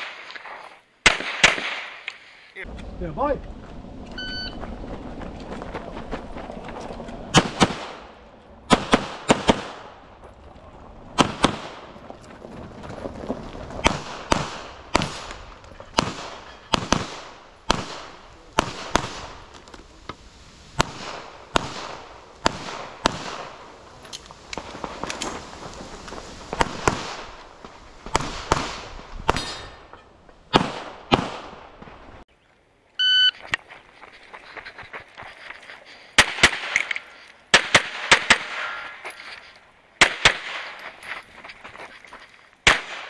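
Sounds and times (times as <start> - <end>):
electronic timer beep: 4.1 - 4.6, 33.0 - 33.4.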